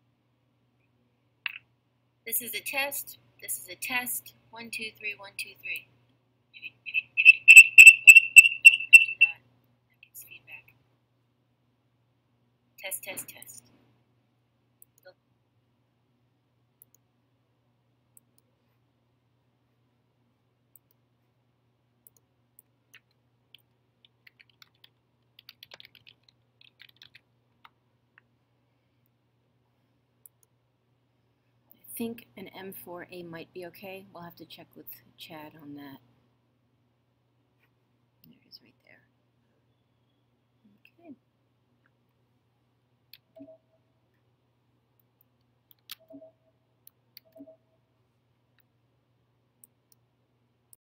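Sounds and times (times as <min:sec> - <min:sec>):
laptop keyboard typing: 0:23.0 - 0:27.8.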